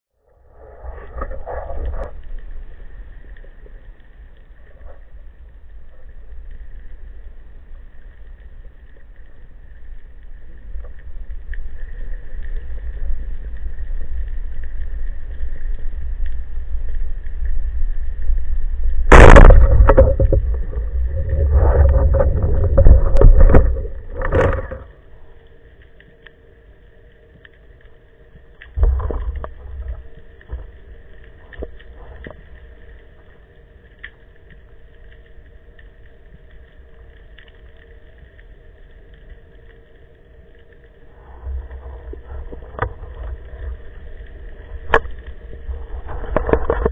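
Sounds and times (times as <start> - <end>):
underwater rumble: 0.1 - 46.9
loud choppy noise: 19.1 - 24.8
sharp crack: 19.1 - 24.9.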